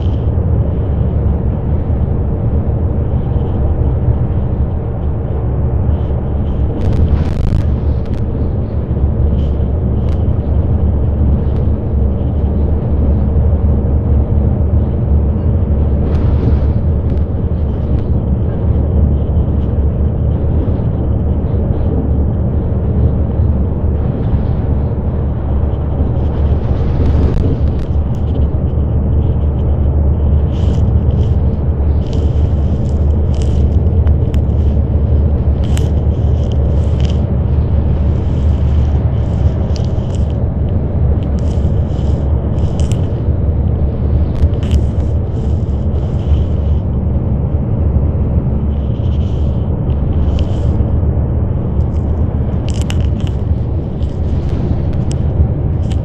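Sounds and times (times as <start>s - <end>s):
bus engine and road noise: 0.0s - 56.0s.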